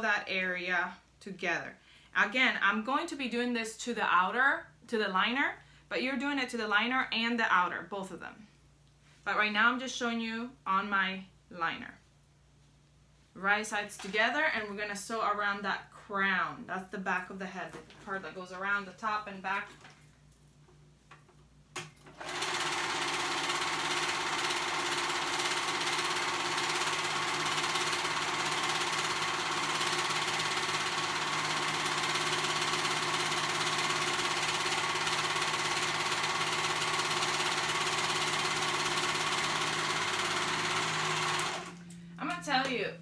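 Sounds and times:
serger machine stitching: 0:22.0 - 0:41.8.

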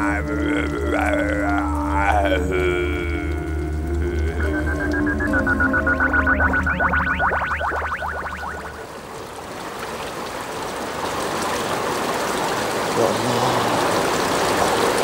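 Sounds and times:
music cue: 0:00.0 - 0:08.9
running water rushing: 0:00.0 - 0:15.0.

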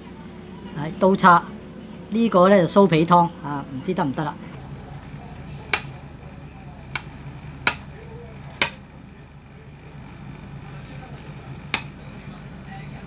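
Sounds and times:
cutlery tapping on crisp pastry: 0:05.7 - 0:06.0, 0:06.9 - 0:08.0, 0:08.6 - 0:08.8, 0:10.8 - 0:12.0.

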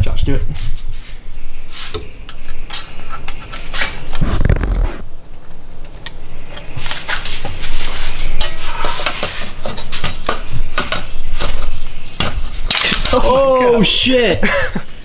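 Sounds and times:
pliers clicking and scraping on metal: 0:01.9 - 0:03.9.

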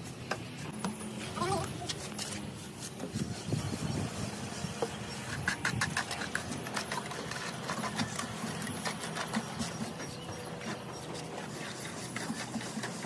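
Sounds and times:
wooden float rubbing plaster: 0:01.4 - 0:13.0
trowel scraping mortar in metal pan: 0:05.1 - 0:13.0.

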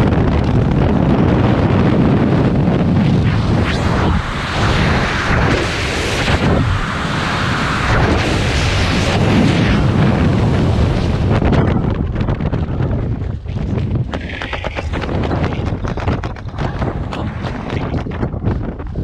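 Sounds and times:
wind rushing over microphone: 0:00.0 - 0:19.0
parachute fluttering: 0:02.9 - 0:10.1, 0:12.5 - 0:19.0.

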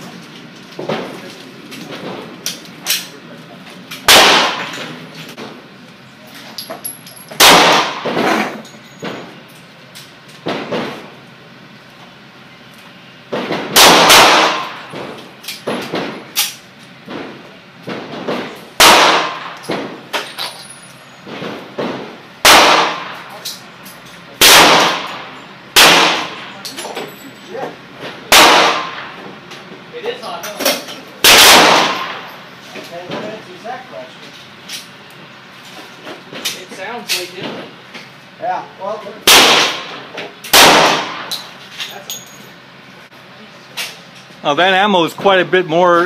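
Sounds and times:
pistol shots ringing: 0:04.0 - 0:05.0, 0:07.4 - 0:08.3, 0:13.7 - 0:15.0, 0:18.8 - 0:20.6, 0:22.4 - 0:23.4, 0:24.4 - 0:26.6, 0:28.3 - 0:29.2, 0:31.2 - 0:32.4, 0:39.2 - 0:41.5.

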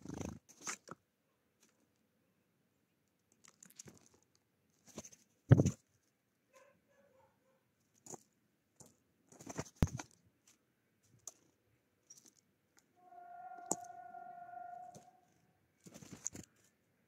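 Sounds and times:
steady pitched tone: 0:13.0 - 0:15.3.

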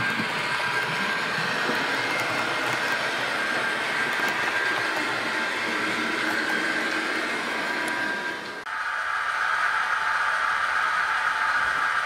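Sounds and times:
wheels rolling on rails: 0:00.0 - 0:08.7
model train motor whine: 0:00.0 - 0:12.0.

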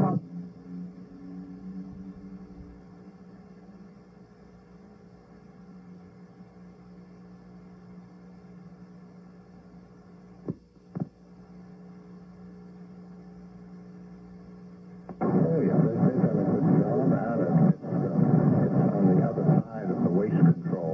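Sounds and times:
low electrical hum: 0:00.0 - 0:20.9
muffled music and voices: 0:15.2 - 0:20.9.

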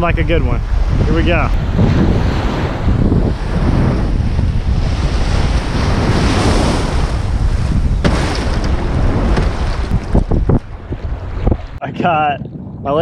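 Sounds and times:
surf washing and breaking: 0:00.0 - 0:11.9
wind buffeting microphone: 0:00.0 - 0:13.0
sharp knock: 0:08.0 - 0:09.6.

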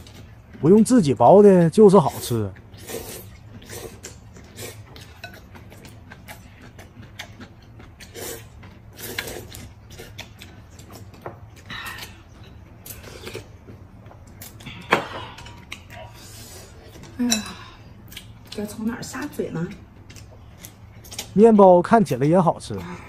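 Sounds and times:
people slurping noodles: 0:02.1 - 0:05.0, 0:08.0 - 0:10.2
chewing: 0:02.1 - 0:17.2.

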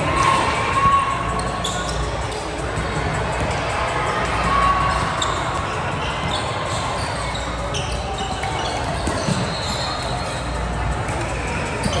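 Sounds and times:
hubbub of spectators' voices: 0:00.0 - 0:12.0
shoe squeaks: 0:00.2 - 0:02.6, 0:04.6 - 0:10.7, 0:11.8 - 0:12.0.

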